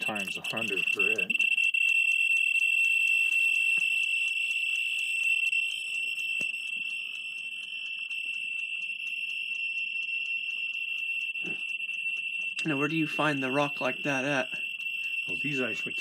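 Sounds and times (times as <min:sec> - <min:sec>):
geiger counter high-pitched buzz: 0:00.0 - 0:16.0.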